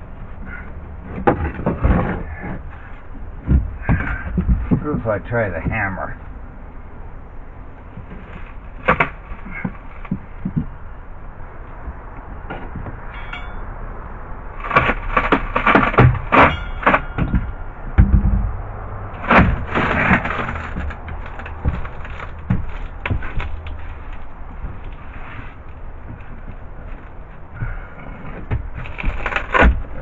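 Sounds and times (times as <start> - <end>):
wood cracking: 0.0 - 6.9, 7.6 - 13.6, 14.4 - 30.0
heavy thud: 1.2 - 5.9, 15.8 - 23.9.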